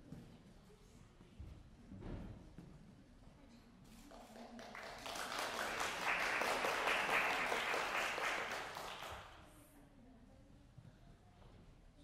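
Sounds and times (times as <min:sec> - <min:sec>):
audience applauding: 0:04.5 - 0:09.3.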